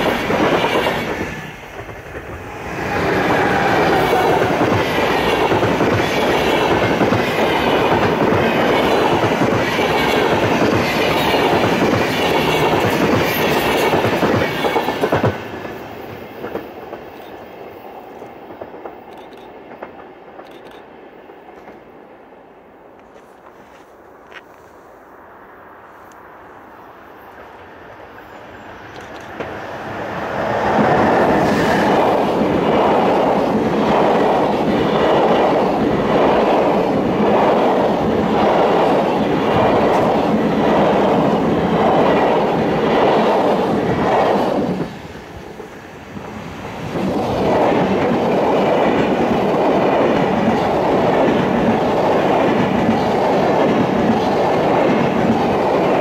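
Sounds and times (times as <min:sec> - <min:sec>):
train wheels clicking over rails: 0:00.0 - 0:21.9, 0:28.7 - 0:56.0
passenger train passing: 0:00.0 - 0:56.0.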